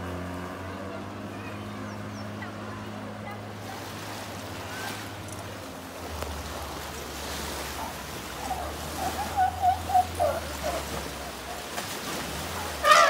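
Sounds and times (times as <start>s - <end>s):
motorboat engine hum: 0.0s - 13.0s
river water flowing: 0.0s - 13.0s
wind: 0.0s - 13.0s
short high calls: 8.4s - 11.5s, 12.6s - 13.0s.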